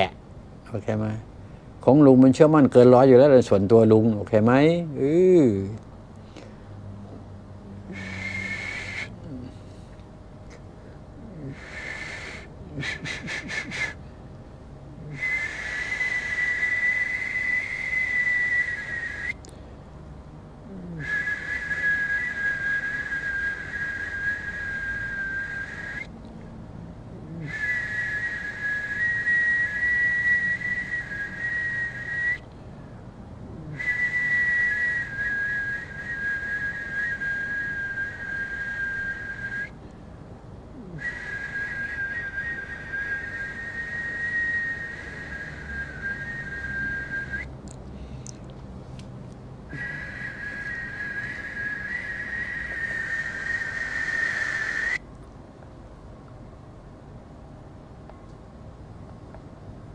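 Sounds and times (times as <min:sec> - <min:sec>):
high two-pitch whistling tone: 0:07.9 - 0:09.2, 0:15.1 - 0:19.4, 0:27.4 - 0:32.4, 0:33.7 - 0:39.8, 0:41.0 - 0:47.5, 0:49.7 - 0:55.0.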